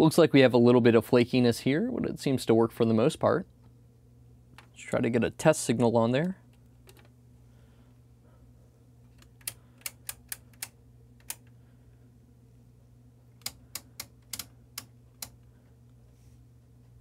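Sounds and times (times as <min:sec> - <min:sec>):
faint low hum: 0:00.0 - 0:17.0
rotary switch knobs clicking: 0:09.1 - 0:11.6, 0:13.4 - 0:15.5.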